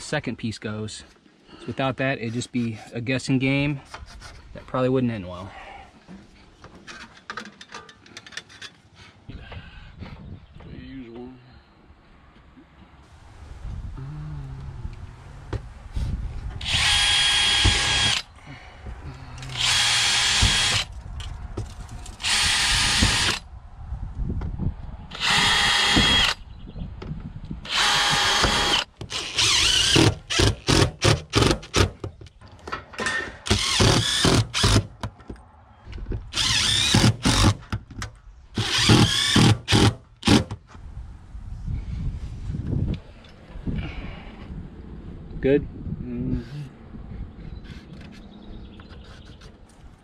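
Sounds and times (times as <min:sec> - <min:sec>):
cordless drill motor whining: 0:16.6 - 0:18.3, 0:19.4 - 0:20.9, 0:22.2 - 0:23.4, 0:25.1 - 0:26.4, 0:27.7 - 0:30.4, 0:33.5 - 0:34.8, 0:36.3 - 0:37.5, 0:38.6 - 0:40.4.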